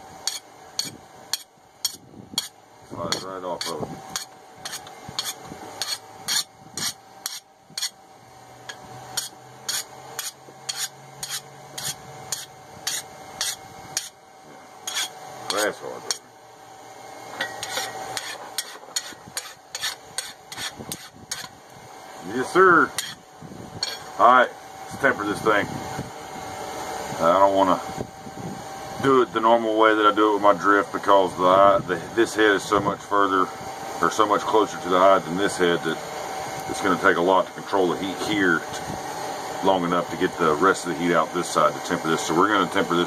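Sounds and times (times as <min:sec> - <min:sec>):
steady hum: 0:00.0 - 0:43.0
file scraping steel: 0:00.2 - 0:08.0, 0:08.7 - 0:14.2, 0:14.8 - 0:16.2, 0:17.4 - 0:21.6, 0:23.0 - 0:23.2, 0:23.8 - 0:24.1.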